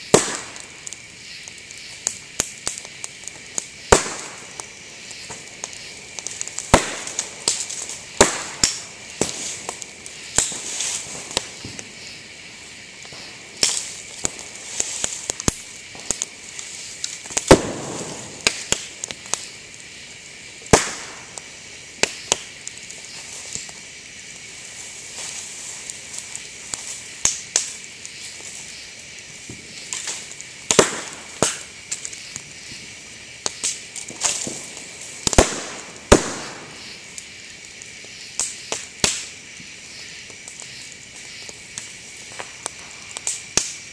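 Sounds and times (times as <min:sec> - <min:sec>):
fire crackling and hissing: 0:00.0 - 0:43.9
bamboo popping with loud bangs: 0:00.1 - 0:00.6, 0:03.9 - 0:04.4, 0:06.7 - 0:07.6, 0:08.2 - 0:09.4, 0:17.4 - 0:18.9, 0:20.7 - 0:21.2, 0:30.7 - 0:31.6, 0:35.2 - 0:36.7.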